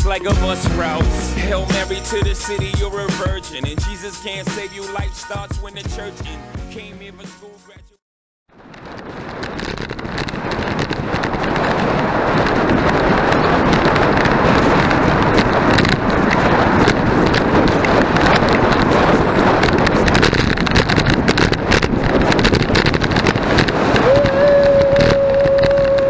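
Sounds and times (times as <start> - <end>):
small crackles: 8.5 - 26.0
wind rushing over microphone: 8.5 - 26.0.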